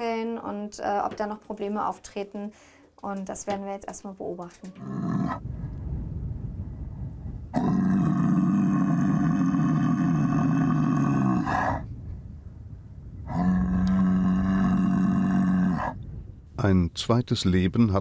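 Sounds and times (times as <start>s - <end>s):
cow growling: 4.7s - 5.5s, 7.5s - 11.9s, 13.2s - 16.1s.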